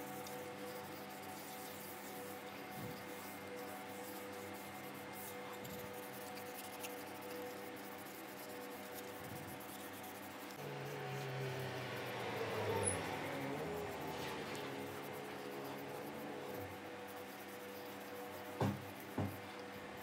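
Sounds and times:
pad rubbing on wood: 0.0 - 20.0.

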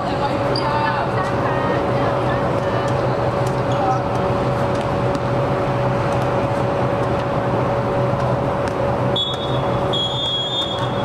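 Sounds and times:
constant hum: 0.0 - 11.0
referee's whistle blasts: 9.2 - 11.0.

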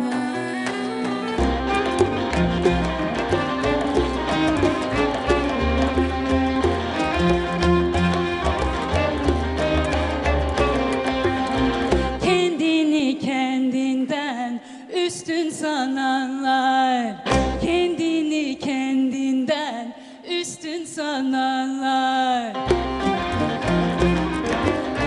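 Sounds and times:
woman singing: 0.0 - 2.1, 12.0 - 25.0
bowed and plucked strings: 0.0 - 12.8, 17.3 - 18.0, 22.6 - 25.0.

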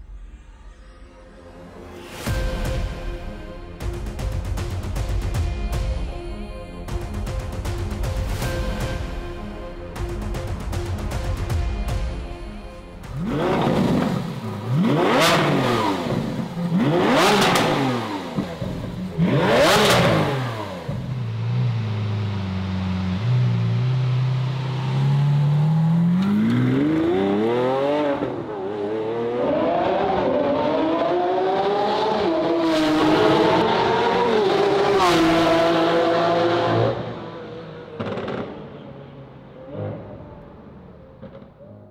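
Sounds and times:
car engine accelerating drone: 13.0 - 41.9
sports car engine revving: 13.1 - 38.7.

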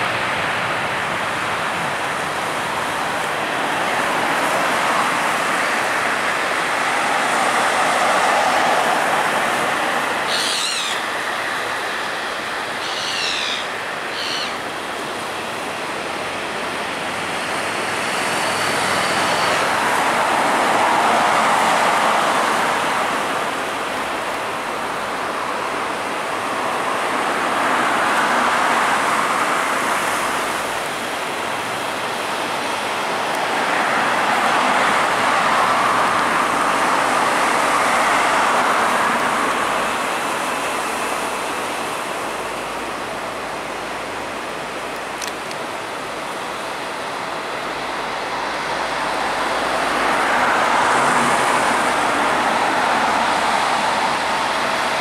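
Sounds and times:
jet engines rushing: 0.0 - 55.0.

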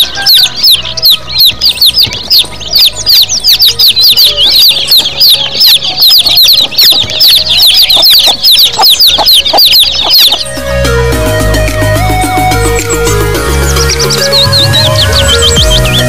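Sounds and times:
baby chicks peeping: 0.0 - 16.0
background music: 0.0 - 16.0.

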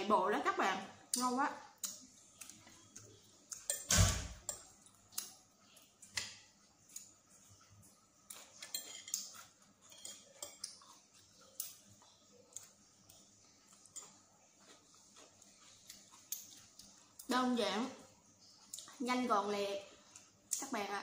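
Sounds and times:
cutlery clinking on ceramic plate: 8.4 - 10.9.

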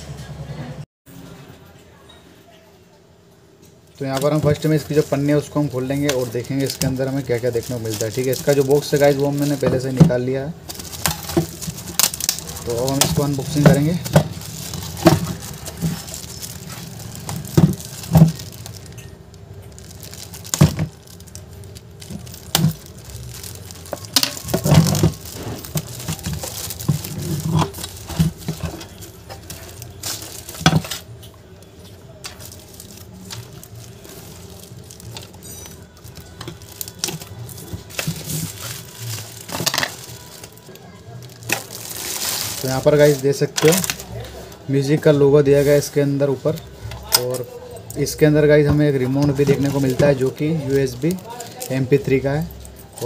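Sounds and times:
plastic wrap crinkling and tearing: 4.0 - 53.0.

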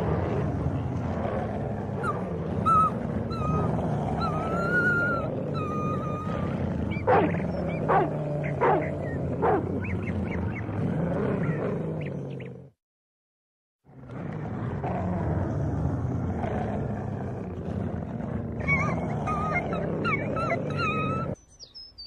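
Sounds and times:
dogs growling low: 0.0 - 12.8, 13.8 - 21.4
dog whining: 2.0 - 10.6, 18.6 - 21.4
dog yelping: 6.9 - 10.4.

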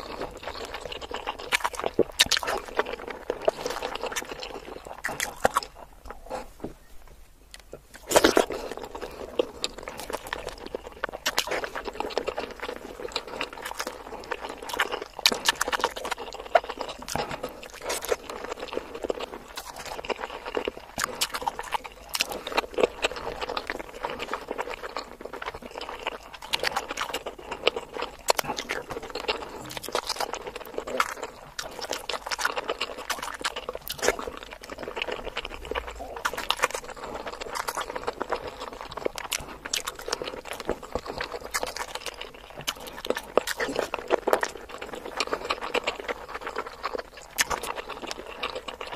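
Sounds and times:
wet biting and chewing: 0.0 - 6.5, 7.5 - 48.9.

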